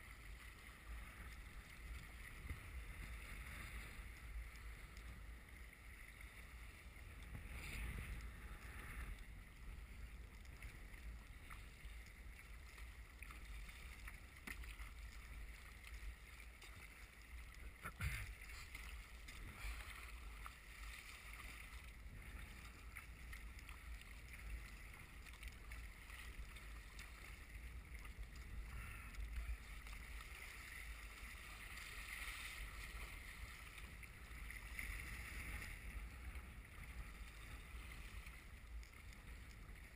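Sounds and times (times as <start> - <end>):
paddle strokes in water: 0.0 - 39.9
water splashing against kayak: 0.0 - 39.9.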